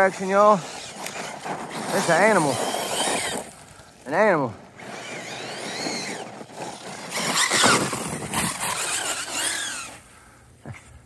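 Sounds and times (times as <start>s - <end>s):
tyres spinning in loose dirt: 0.0s - 10.1s
electric motor whining: 0.5s - 3.6s, 4.7s - 10.1s.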